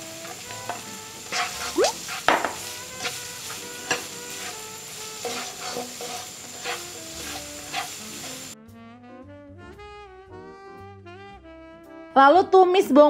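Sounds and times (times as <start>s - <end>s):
onion and garlic sizzling in oil: 0.0s - 8.6s
spatula scraping and knocking pan: 0.2s - 8.6s.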